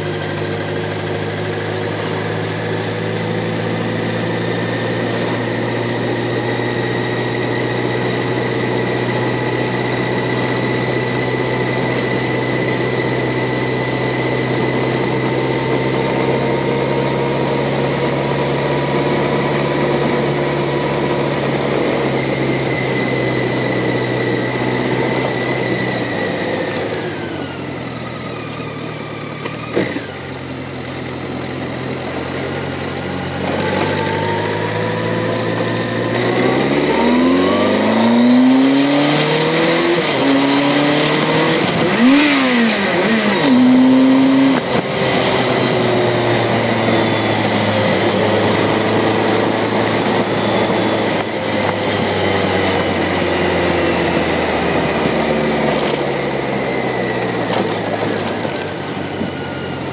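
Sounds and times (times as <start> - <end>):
motorcycle engine cruising: 0.0 - 59.9.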